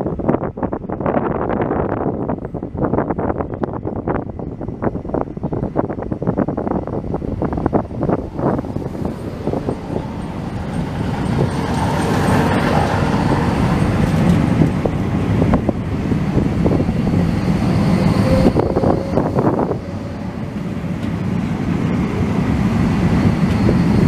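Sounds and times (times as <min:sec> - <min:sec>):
tram rumbling on rails: 0:00.0 - 0:24.0
brief high tone: 0:17.5 - 0:20.7.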